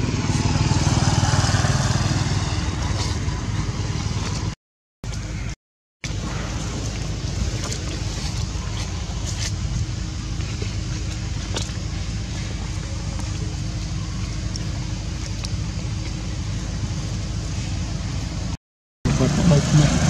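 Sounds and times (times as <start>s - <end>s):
faint constant hum: 6.1s - 18.6s
low rumble and hiss: 6.1s - 20.0s.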